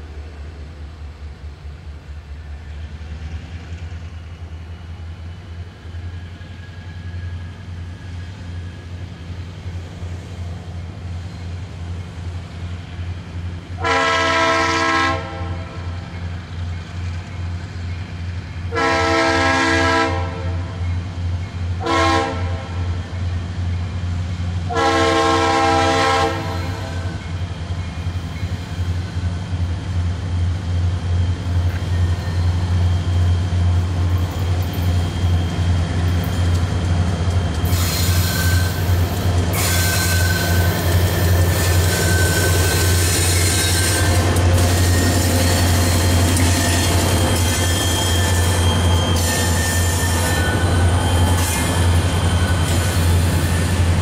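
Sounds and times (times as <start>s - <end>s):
train rushing: 0.0s - 54.0s
locomotive air horn: 13.8s - 15.9s, 18.7s - 20.7s, 21.8s - 22.9s, 24.7s - 27.2s, 38.2s - 53.8s.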